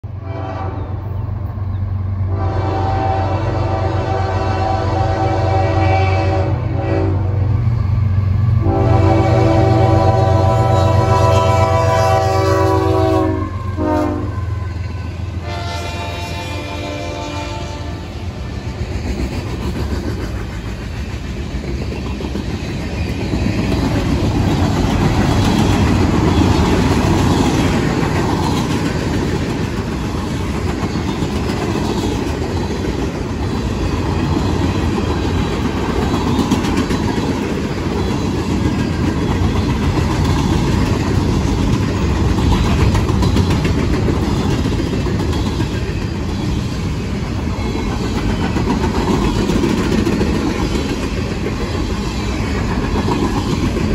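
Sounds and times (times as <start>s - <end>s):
freight train rolling past: 0.0s - 53.9s.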